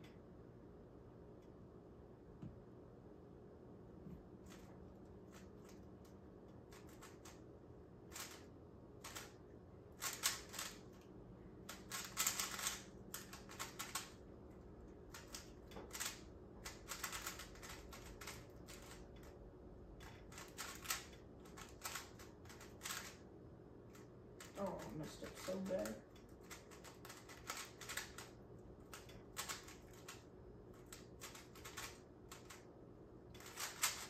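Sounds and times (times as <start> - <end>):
puzzle cube plastic clicks: 10.0 - 10.9, 11.6 - 14.2, 26.4 - 32.7, 33.4 - 34.0.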